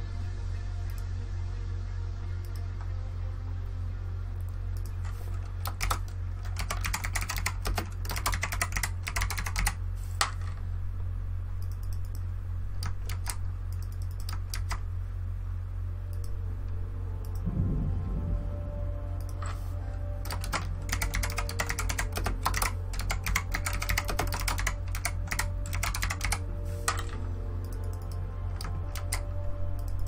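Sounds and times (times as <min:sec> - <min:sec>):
steady low hum: 0:00.0 - 0:30.0
typing on computer keyboard: 0:05.5 - 0:09.8, 0:12.8 - 0:14.8, 0:20.2 - 0:27.2, 0:28.6 - 0:30.0.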